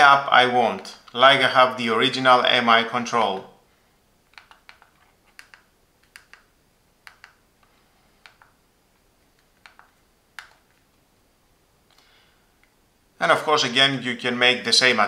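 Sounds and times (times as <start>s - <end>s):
remote control button clicks: 4.3s - 7.4s.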